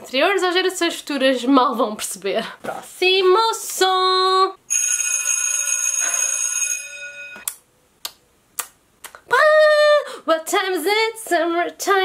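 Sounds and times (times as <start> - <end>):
electric school bell ringing: 4.7 - 7.5.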